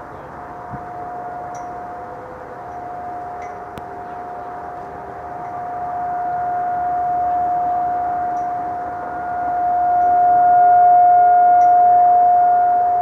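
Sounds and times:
distant warning siren steady tone: 0.0s - 13.0s.

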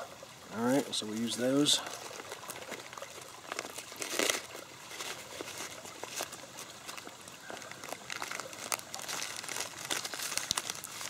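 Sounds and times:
stream trickling: 0.0s - 11.0s
plastic packets crinkling: 1.5s - 11.0s.

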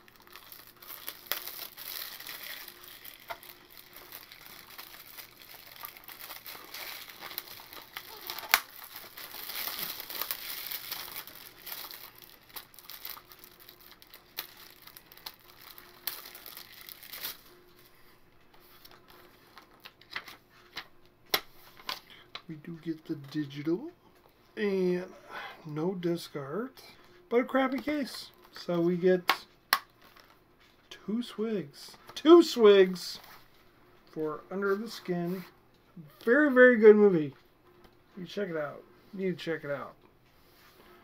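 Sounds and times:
plastic wrap crinkling: 0.0s - 17.5s.

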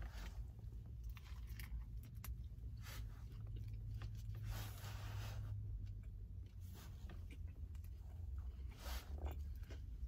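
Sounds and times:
low steady hum: 0.0s - 10.0s
person chewing: 5.9s - 10.0s.

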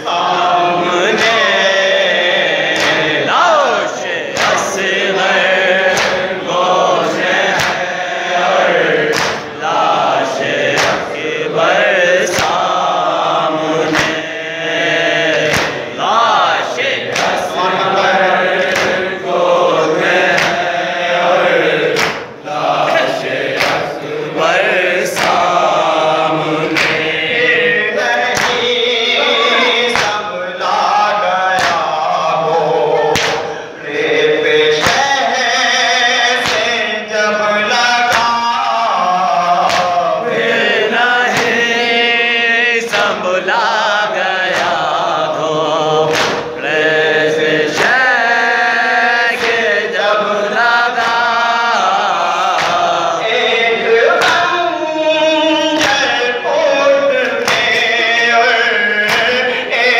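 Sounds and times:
group of voices chanting: 0.0s - 59.9s
man chanting through microphone: 0.0s - 59.9s
hands slapping chests: 1.0s - 1.5s, 2.6s - 3.3s, 4.3s - 4.8s, 5.8s - 6.3s, 7.3s - 7.9s, 9.0s - 9.6s, 10.4s - 11.1s, 12.2s - 12.8s, 13.8s - 14.3s, 15.4s - 15.9s, 17.0s - 17.5s, 18.5s - 19.2s, 20.0s - 20.8s, 21.8s - 24.1s, 25.1s - 25.9s, 26.6s - 27.2s, 28.3s - 28.8s, 29.9s - 30.2s, 31.5s - 32.0s, 33.0s - 33.6s, 34.8s - 35.1s, 36.4s - 36.7s, 38.1s - 38.3s, 39.6s - 40.0s, 41.3s - 41.6s, 44.4s - 44.9s, 46.0s - 46.6s, 47.6s - 48.1s, 49.3s - 49.7s, 50.9s - 51.3s, 52.5s - 53.0s, 54.2s - 54.5s, 55.8s - 56.1s, 57.2s - 57.9s, 59.0s - 59.4s.

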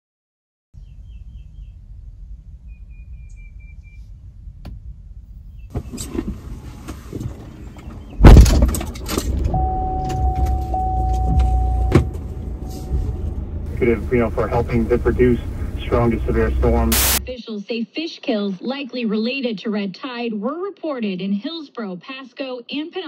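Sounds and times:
steady low rumble: 1.2s - 5.7s, 8.2s - 17.4s
loud thump: 8.2s - 12.3s
thin steady tone: 9.6s - 15.8s.

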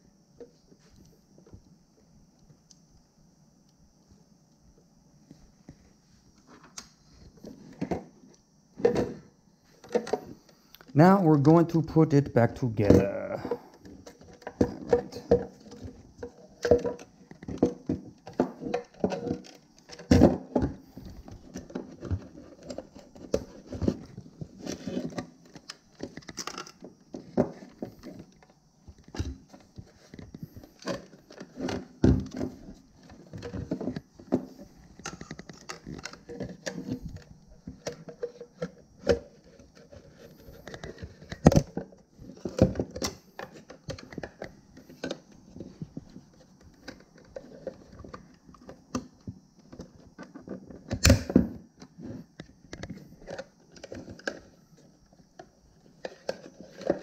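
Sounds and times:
plastic parts clicking and rattling: 13.5s - 57.0s.

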